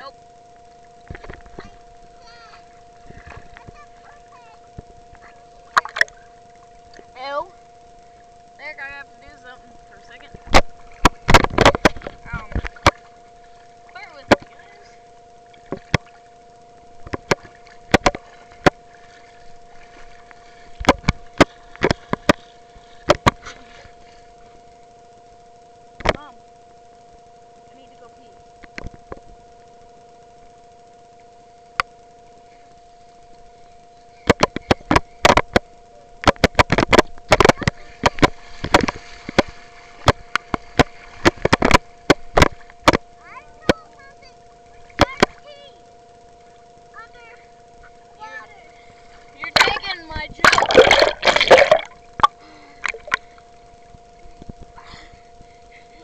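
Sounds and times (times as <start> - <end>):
two-tone hum: 0.0 - 56.0
camera knocking underwater: 4.7 - 6.2, 10.3 - 13.1, 14.2 - 14.6, 15.6 - 16.1, 17.0 - 18.9, 19.9 - 23.6, 34.2 - 43.1, 44.9 - 45.4, 49.4 - 53.3.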